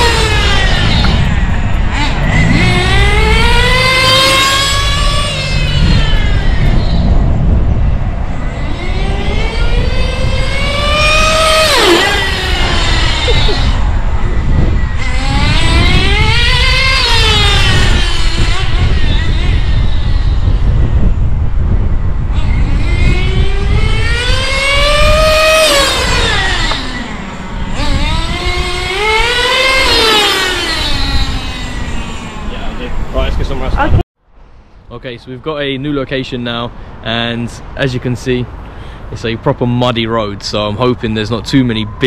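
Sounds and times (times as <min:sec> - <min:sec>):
rc car engine whining: 0:00.0 - 0:21.3, 0:22.0 - 0:34.0
wind rumble on microphone: 0:00.0 - 0:42.0.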